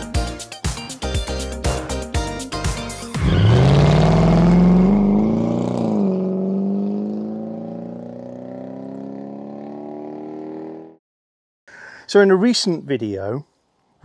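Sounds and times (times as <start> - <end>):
car engine accelerating hard: 3.2 - 10.9.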